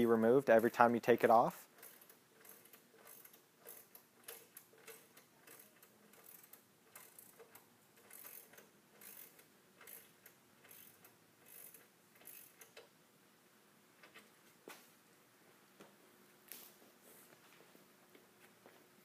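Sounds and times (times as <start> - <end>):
ratchet wrench clicking: 1.7 - 12.9.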